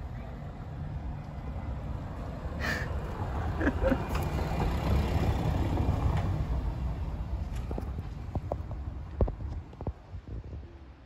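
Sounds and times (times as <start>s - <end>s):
vehicle passing: 0.4s - 9.1s.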